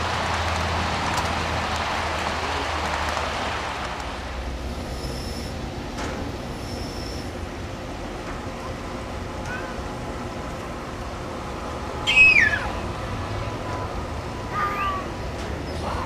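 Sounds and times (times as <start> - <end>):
high wheel squeals: 6.5 - 7.3.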